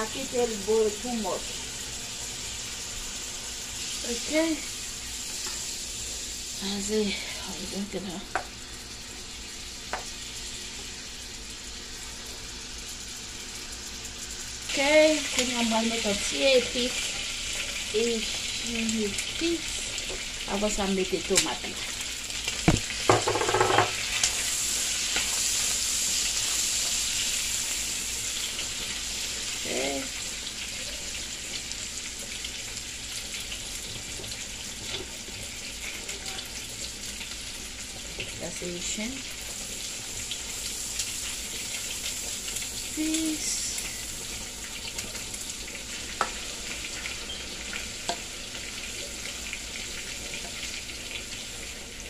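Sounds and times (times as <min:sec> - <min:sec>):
food sizzling in a wok: 0:00.0 - 0:52.0.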